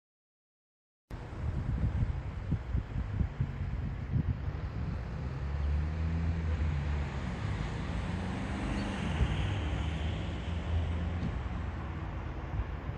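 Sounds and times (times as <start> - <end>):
engine rumble: 1.1 - 12.9
road traffic: 1.1 - 12.9
vehicle passing: 3.5 - 12.9.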